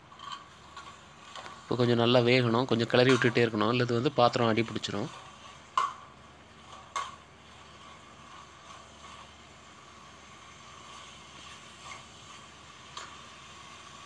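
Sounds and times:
soft steady sizzle: 0.0 - 14.0.

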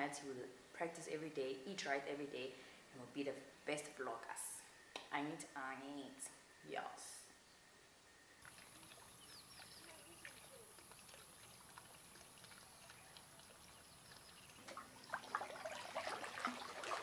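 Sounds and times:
faint bird chirps: 7.2 - 16.0
water splashing in pool: 8.4 - 17.0
water trickling from spout: 8.4 - 17.0.

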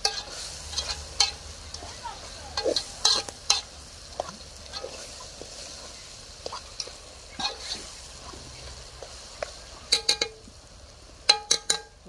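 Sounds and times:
spoon stirring in metal pot: 0.0 - 1.8, 2.6 - 5.8, 6.4 - 8.4, 9.0 - 10.4, 11.2 - 12.0
soft sizzle: 0.0 - 12.0
spoon clinking against pot: 11.3 - 12.0.

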